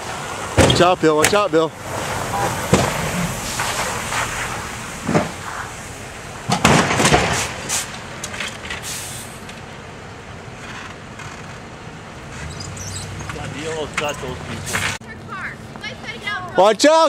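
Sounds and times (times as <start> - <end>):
loud crunching crash impact: 2.1 - 8.1.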